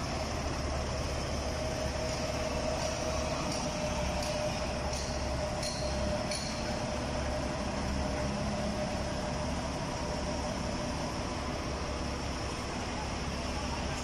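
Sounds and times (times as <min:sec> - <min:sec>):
forklift engine running: 0:00.0 - 0:14.0.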